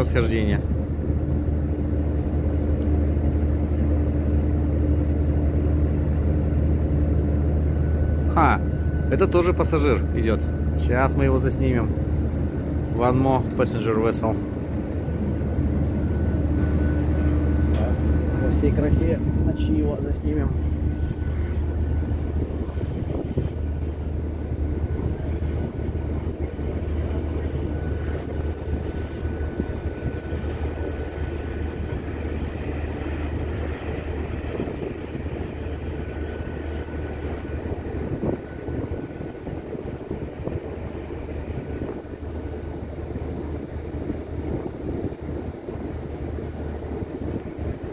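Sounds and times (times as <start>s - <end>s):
ship engines droning: 0.0s - 47.9s
water wash: 7.4s - 47.9s
wind noise: 14.3s - 47.9s.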